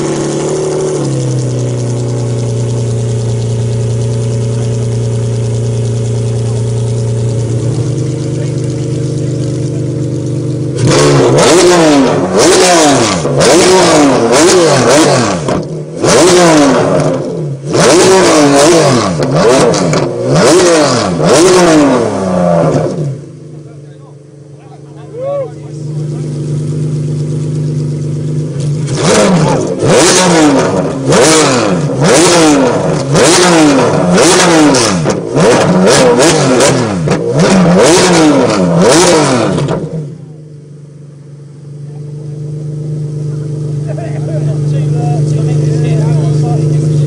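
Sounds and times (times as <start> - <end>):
sports car engine revving: 0.0 - 47.0.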